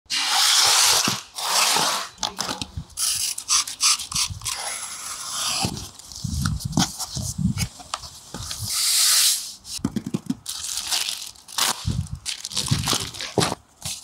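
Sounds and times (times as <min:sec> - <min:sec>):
utility knife slicing tape: 0:00.1 - 0:02.1, 0:03.0 - 0:05.8
long scraping hisses: 0:08.7 - 0:09.8.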